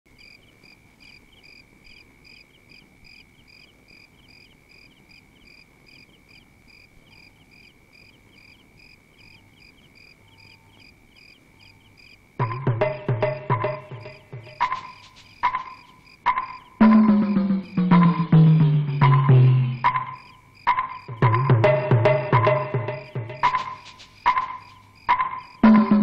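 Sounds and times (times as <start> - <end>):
faint cricket chirping: 0.1 - 26.0.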